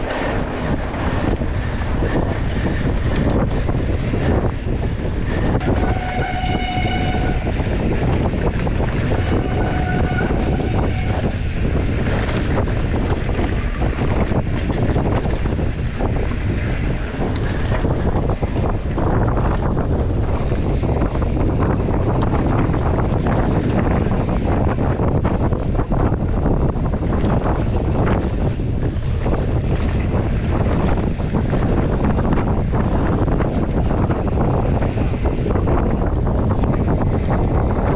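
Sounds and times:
bike rattling and knocking: 0.0 - 37.9
wind buffeting microphone: 0.0 - 37.9
high squeal: 5.6 - 7.8, 9.0 - 11.4.

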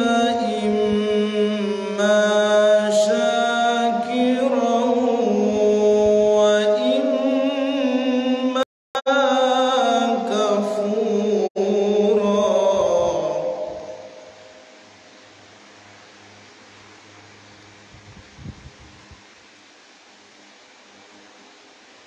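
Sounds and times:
man chanting melodically: 0.0 - 14.8.

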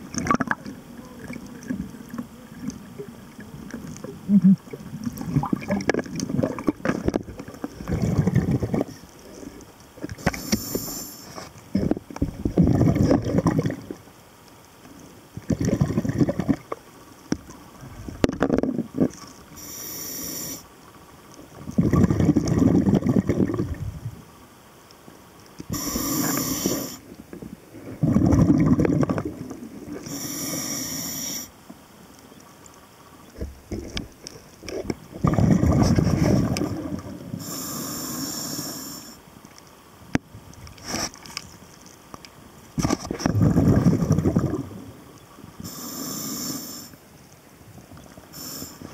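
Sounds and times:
exhaled bubbles rushing: 0.0 - 9.0, 11.7 - 14.0, 15.4 - 16.8, 21.6 - 24.2, 28.0 - 29.6, 35.1 - 37.4, 42.8 - 45.0
regulator inhale hiss: 10.2 - 11.5, 19.5 - 20.7, 25.7 - 27.1, 30.0 - 31.6, 37.3 - 39.3, 45.6 - 47.0, 48.2 - 48.9.

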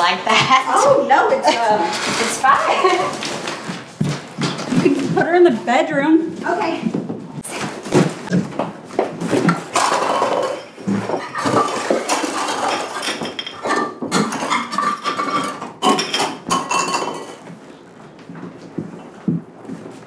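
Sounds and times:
cups clattering and clinking: 9.4 - 17.7.

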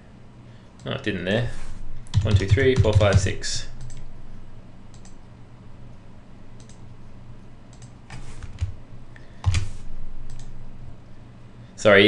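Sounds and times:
faint low hum: 0.0 - 12.0
keyboard keystrokes: 2.1 - 4.0.

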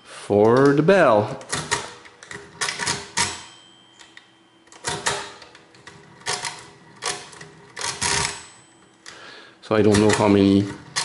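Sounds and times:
thin faint ringing tone: 0.0 - 1.3, 3.1 - 10.6
mechanical calculator cranking clatter: 4.8 - 8.5, 9.8 - 11.0.

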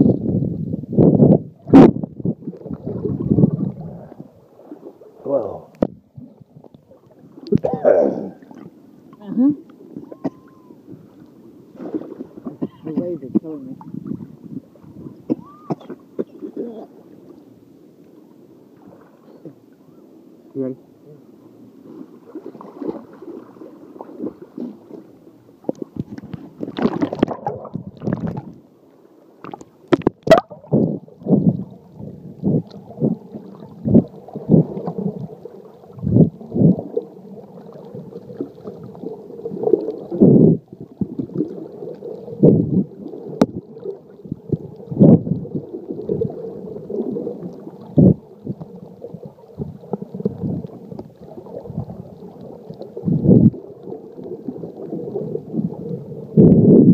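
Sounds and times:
muffled underwater gurgling: 0.0 - 4.4, 29.9 - 56.9.

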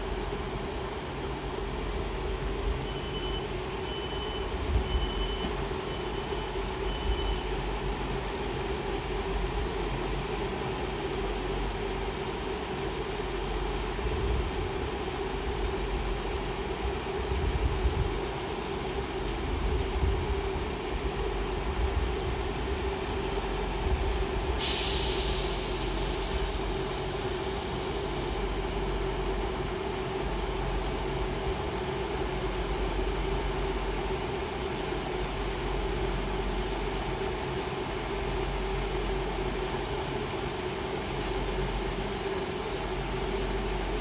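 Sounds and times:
train diesel engines humming: 0.0 - 44.0
loud high hiss: 24.6 - 28.4.

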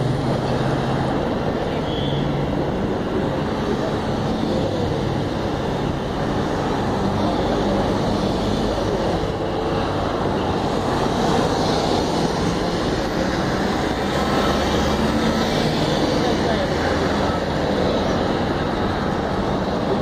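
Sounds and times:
vehicles driving past: 0.0 - 20.0.

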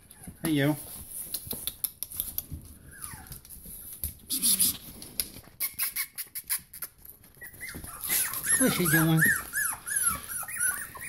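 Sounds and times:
puppies scuffling and clicking: 0.0 - 11.0
puppies whimpering: 2.8 - 3.7, 5.6 - 11.0.

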